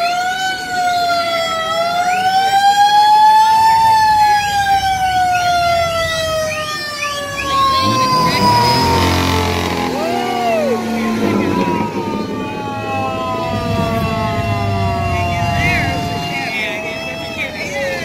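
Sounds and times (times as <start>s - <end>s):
siren wailing: 0.0s - 18.0s.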